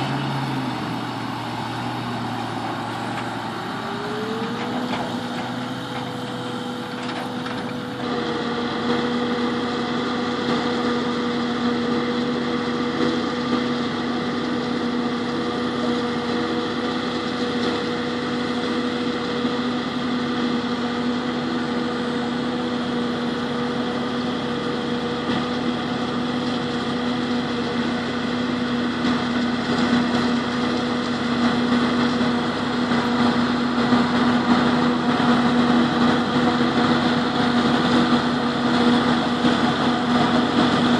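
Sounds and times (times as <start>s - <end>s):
engines droning: 0.0s - 9.0s.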